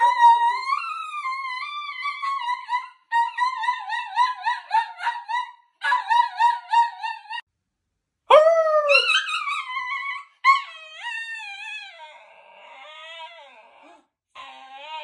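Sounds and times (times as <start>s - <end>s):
dog howling: 8.3s - 15.0s.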